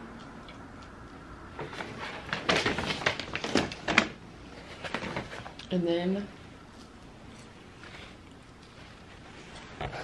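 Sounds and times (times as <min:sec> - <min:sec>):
paper bag rustling and crinkling: 0:01.6 - 0:05.6.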